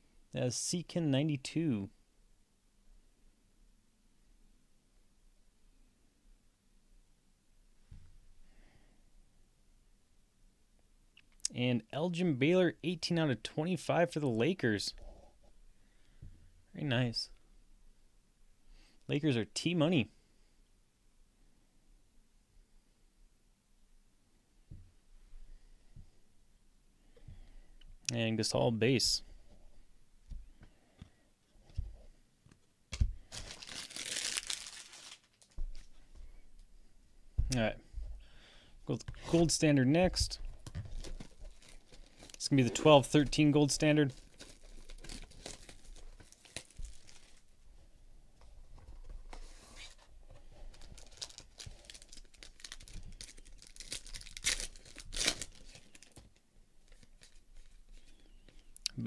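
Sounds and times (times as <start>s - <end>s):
cards rustling: 32.9s - 36.0s, 39.0s - 47.5s, 48.8s - 58.7s
plastic wrapping crinkling: 32.9s - 36.0s, 40.2s - 47.5s, 49.0s - 58.2s.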